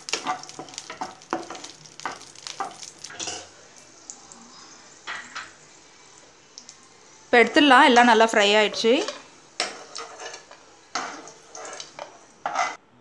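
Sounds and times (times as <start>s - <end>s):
spatula scraping pan: 0.0s - 3.5s, 8.5s - 12.8s
frying sizzle: 0.0s - 12.8s.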